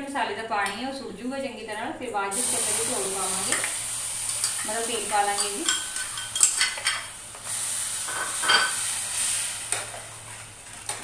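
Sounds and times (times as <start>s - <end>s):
paste sizzling in pan: 2.3s - 11.0s.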